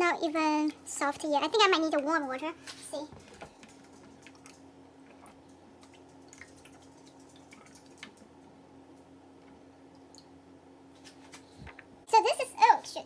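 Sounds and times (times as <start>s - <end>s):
steady low hum: 0.0s - 13.0s
water dripping: 3.5s - 10.6s.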